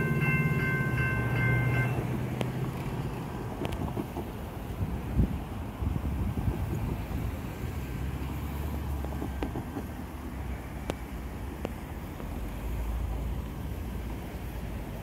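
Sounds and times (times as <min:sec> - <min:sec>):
vehicle engines idling: 0:00.0 - 0:08.7.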